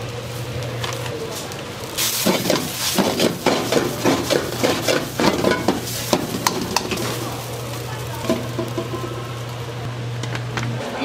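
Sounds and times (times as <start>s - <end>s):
rice sizzling in a pan: 0.0s - 9.9s
scraping and tossing in a pan: 2.0s - 9.1s.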